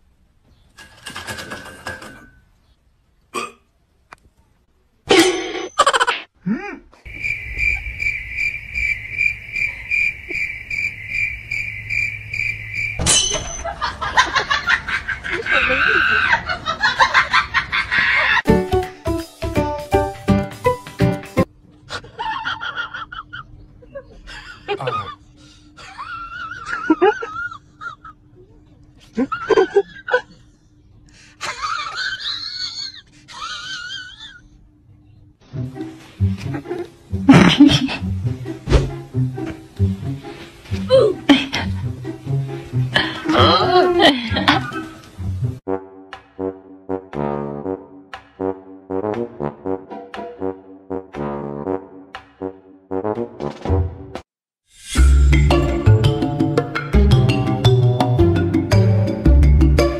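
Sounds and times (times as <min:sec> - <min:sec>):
cricket chirping: 0:07.1 - 0:13.6.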